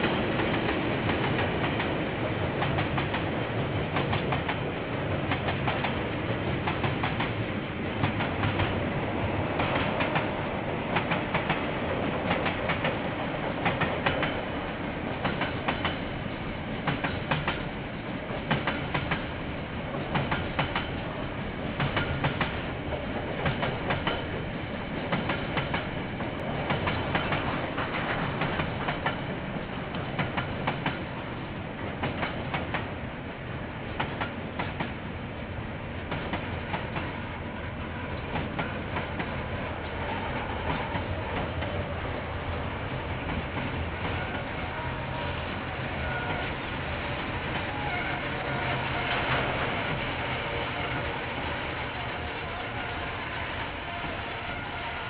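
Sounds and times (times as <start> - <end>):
train wheels clicking over rail joints: 0.0 - 31.2, 31.8 - 33.0, 33.8 - 35.1, 35.9 - 44.5
train rumble: 0.0 - 55.0.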